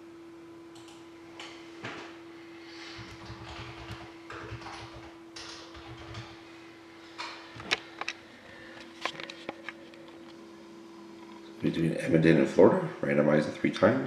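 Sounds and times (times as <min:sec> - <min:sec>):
steady low hum: 0:00.0 - 0:14.0
sharp computer clicks: 0:00.8 - 0:01.6, 0:03.1 - 0:06.4.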